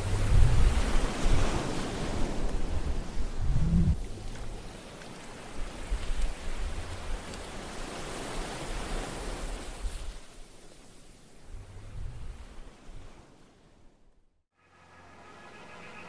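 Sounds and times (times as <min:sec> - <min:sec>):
wind buffeting microphone: 0:00.0 - 0:10.3, 0:11.4 - 0:13.2
rushing wind and sea: 0:00.0 - 0:14.3.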